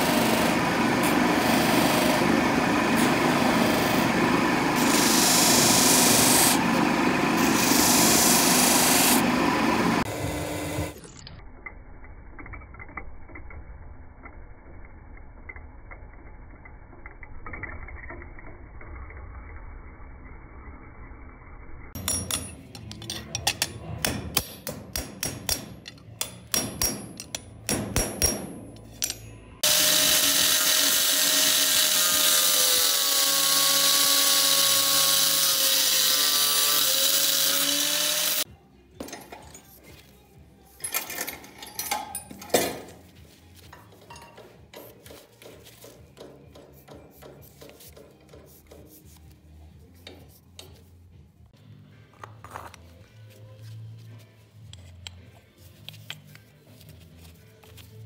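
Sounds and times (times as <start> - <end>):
cut-off wheel cutting steel: 0.0 - 11.2, 29.6 - 38.5
metal taps ringing: 22.0 - 29.4.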